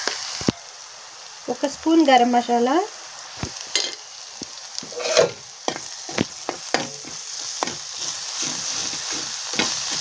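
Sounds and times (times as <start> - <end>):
onions frying in oil: 0.0 - 10.0
metal spatula scraping pan: 4.8 - 10.0.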